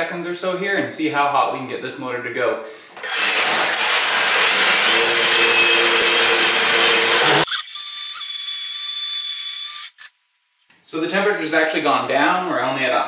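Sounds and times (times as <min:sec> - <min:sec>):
electric motor whining: 0:03.0 - 0:10.1.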